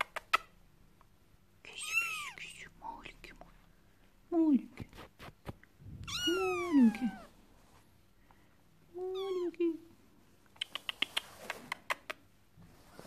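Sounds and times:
scratchy rustles on bedspread: 4.7s - 5.6s
kitten meowing: 6.0s - 7.3s.

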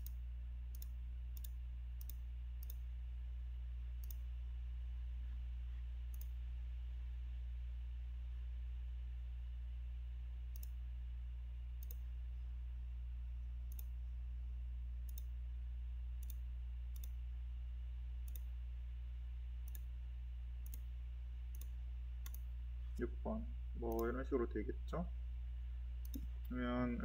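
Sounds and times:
computer mouse clicks: 0.0s - 2.8s, 4.0s - 4.3s, 6.1s - 6.4s, 10.5s - 10.8s, 11.8s - 12.1s, 13.7s - 13.9s, 15.0s - 15.3s, 16.2s - 17.2s, 18.2s - 18.5s, 19.6s - 19.9s, 20.6s - 20.9s, 21.5s - 22.5s, 23.9s - 24.1s, 26.0s - 26.5s
low hum: 0.0s - 27.0s.

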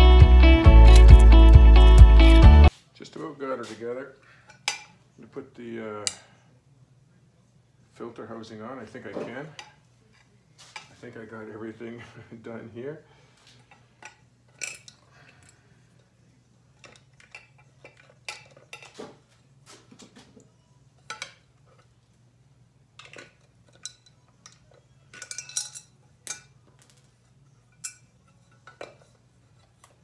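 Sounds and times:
metal tools clinking: 0.8s - 1.4s, 13.7s - 15.6s, 23.0s - 29.2s.

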